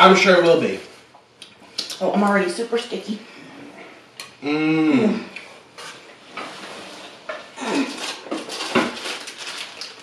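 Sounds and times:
paper napkins rustling: 0:05.8 - 0:10.0.

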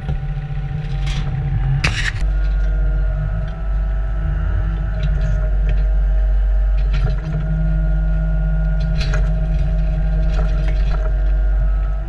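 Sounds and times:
diesel engine running: 0:00.0 - 0:12.0
bucket scraping stony ground: 0:01.8 - 0:02.2.

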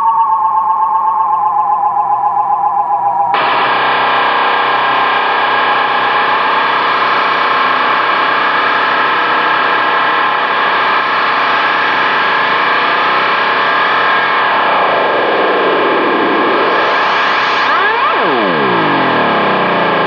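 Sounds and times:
electronic noise music: 0:00.0 - 0:20.0
tone sweeping upward: 0:13.3 - 0:20.0.

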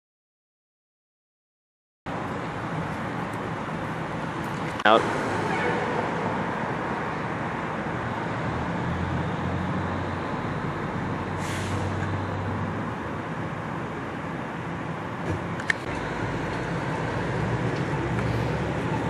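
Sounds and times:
street traffic noise: 0:02.1 - 0:19.0
short hiss: 0:11.4 - 0:11.9.

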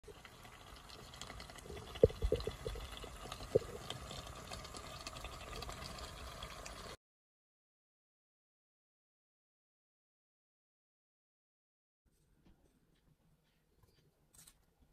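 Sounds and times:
bubbles bursting with plops: 0:00.0 - 0:06.8
curry bubbling in a pot: 0:00.0 - 0:07.0.

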